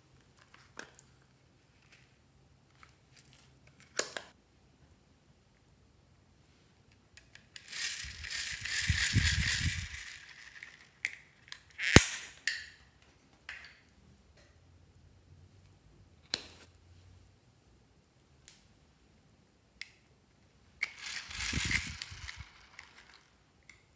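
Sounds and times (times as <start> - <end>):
plastic items rattling: 7.5 - 11.1, 20.9 - 23.4.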